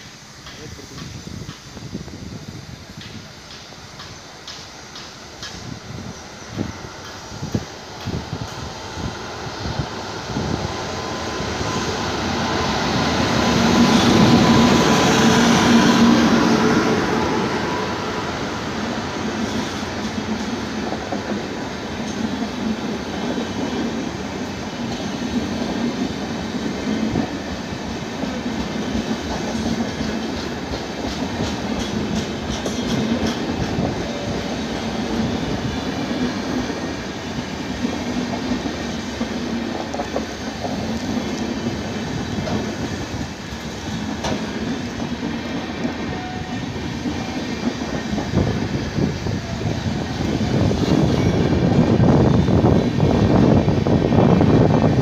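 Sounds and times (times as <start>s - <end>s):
train wheels clacking over rail joints: 0.0s - 1.8s, 2.9s - 5.8s, 24.8s - 48.8s
electric locomotive passing: 0.0s - 55.0s
train coaches rumbling past: 0.0s - 55.0s.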